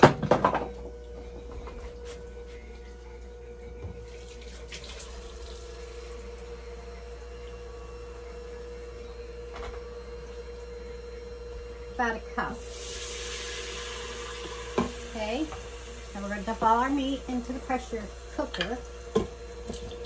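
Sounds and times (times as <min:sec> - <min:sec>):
tap running into cup: 0:14.7 - 0:15.7, 0:18.5 - 0:20.0.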